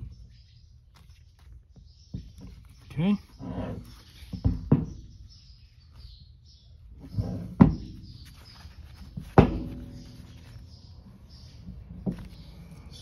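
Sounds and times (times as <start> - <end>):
metal tools knocking on wood and metal: 9.2 - 10.4.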